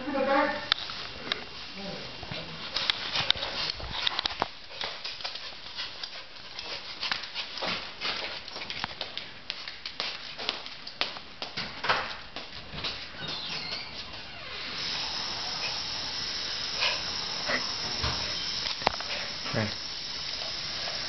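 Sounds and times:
dog claws tapping on tile: 0:02.8 - 0:12.5.

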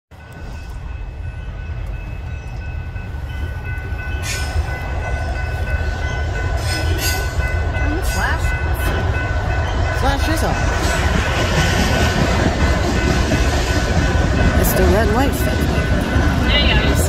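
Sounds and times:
freight train rumbling past: 0:00.1 - 0:17.0
high ringing tone: 0:13.0 - 0:17.0.

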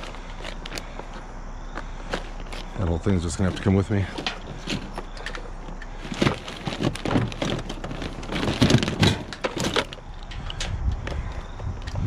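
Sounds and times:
cables and debris rattling: 0:00.0 - 0:12.0
plastic sheeting crinkling: 0:06.0 - 0:10.0.

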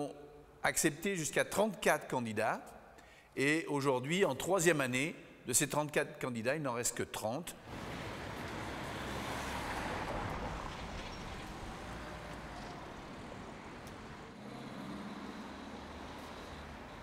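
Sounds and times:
low traffic rumble: 0:07.6 - 0:17.0
vehicle passing: 0:07.6 - 0:17.0.

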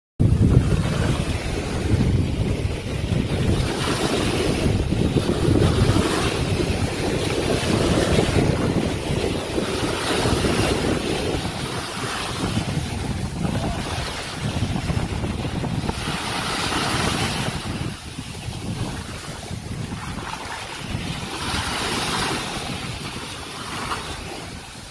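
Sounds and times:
ocean waves breaking on beach: 0:00.2 - 0:24.9
wind buffeting microphone: 0:00.2 - 0:24.9.

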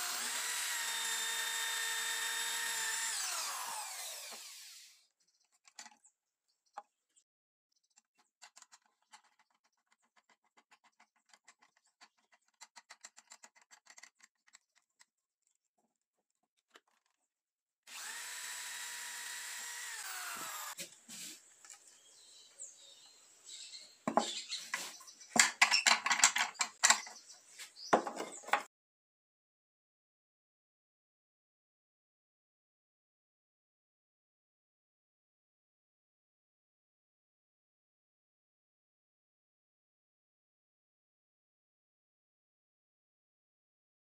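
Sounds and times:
electric drill boring wood: 0:00.0 - 0:05.0, 0:17.9 - 0:20.8
wooden knocks and scraping: 0:24.1 - 0:28.7.

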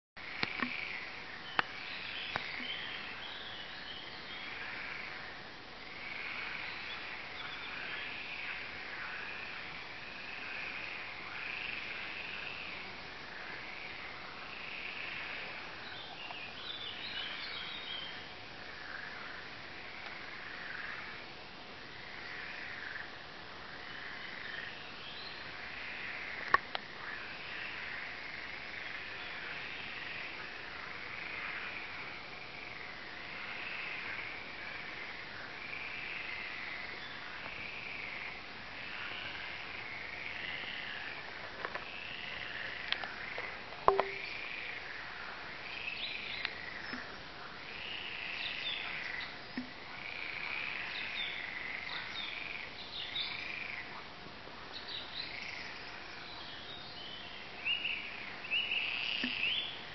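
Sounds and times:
frogs croaking: 0:00.2 - 0:54.2, 0:55.0 - 0:59.9
sharp knock: 0:43.9 - 0:44.3.

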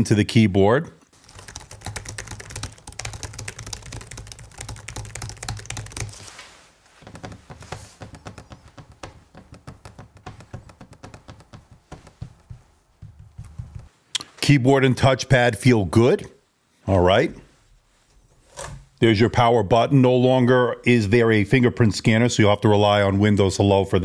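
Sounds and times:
laptop keyboard typing: 0:01.2 - 0:06.4, 0:07.0 - 0:13.9.

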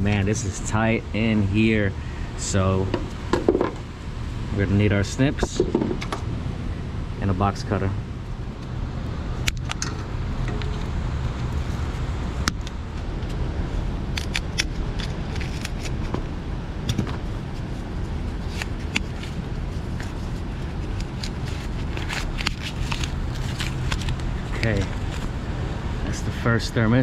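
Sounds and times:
steady low rumble: 0:00.0 - 0:27.0
cutters snipping wires: 0:14.1 - 0:16.1.

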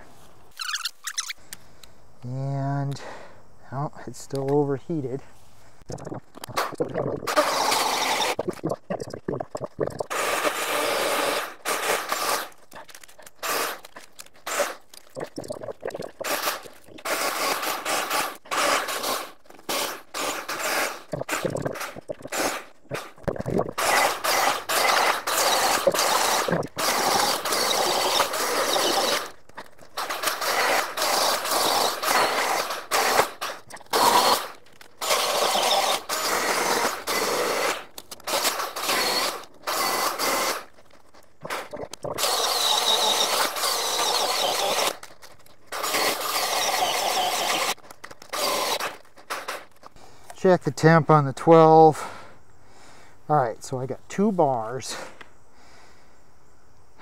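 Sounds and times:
chainsaw cutting wood in bursts: 0:10.1 - 0:12.5, 0:13.4 - 0:14.8, 0:16.2 - 0:21.1, 0:23.8 - 0:29.4, 0:30.0 - 0:40.7, 0:41.5 - 0:45.0, 0:45.7 - 0:49.6.

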